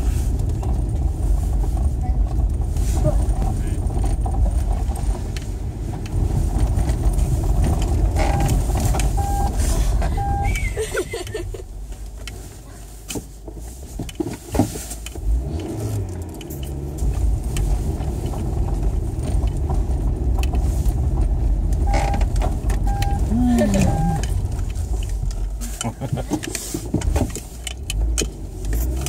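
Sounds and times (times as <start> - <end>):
car engine and tyres rumbling: 0.0 - 29.0
short tones: 9.2 - 9.6, 10.2 - 10.8, 21.8 - 22.2, 22.9 - 24.3.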